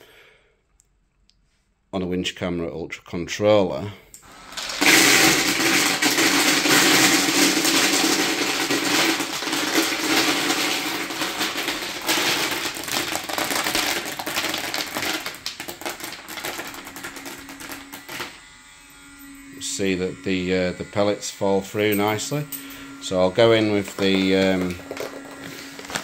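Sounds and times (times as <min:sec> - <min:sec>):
pellets rattling in plastic hopper: 0:04.4 - 0:18.3, 0:23.7 - 0:26.0.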